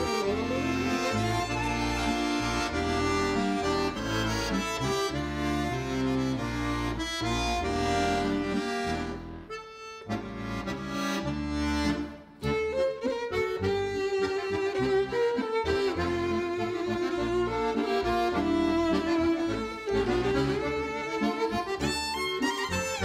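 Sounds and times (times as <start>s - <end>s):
instrumental background music: 0.0s - 23.0s.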